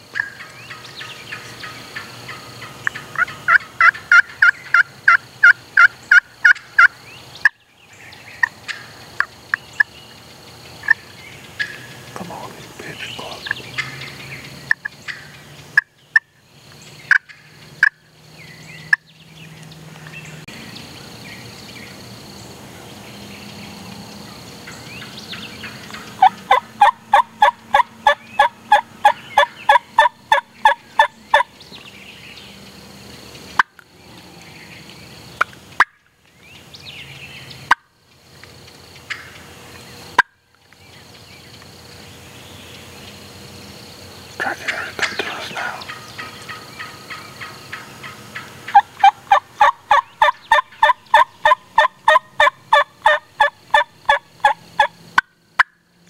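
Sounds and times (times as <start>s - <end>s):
wild turkeys calling: 0.1s - 10.0s, 10.8s - 16.4s, 17.1s - 18.0s, 24.6s - 31.7s, 39.0s - 39.6s, 44.4s - 55.8s.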